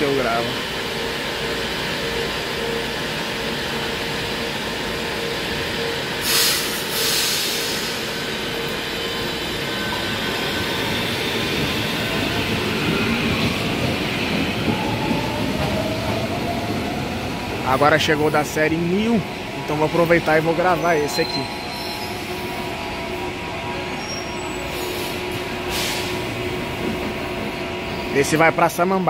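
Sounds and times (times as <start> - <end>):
train brief hiss: 6.2 - 8.2, 24.6 - 26.3.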